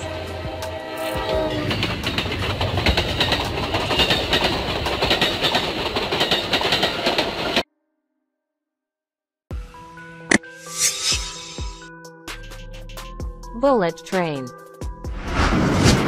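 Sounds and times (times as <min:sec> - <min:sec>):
train wheels on rail clicking: 0:01.8 - 0:07.6.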